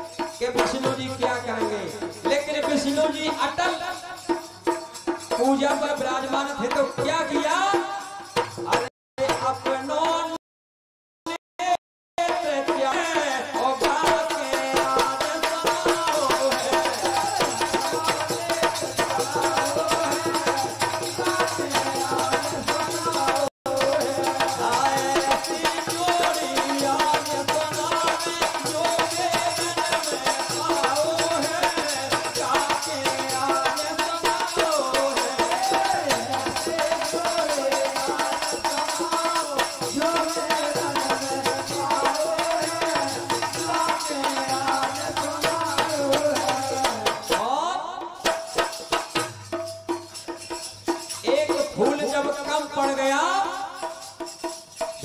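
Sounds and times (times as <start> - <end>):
rattling percussion: 0.0 - 10.2, 12.2 - 47.6, 48.2 - 55.0
hand drum beat: 13.8 - 47.5.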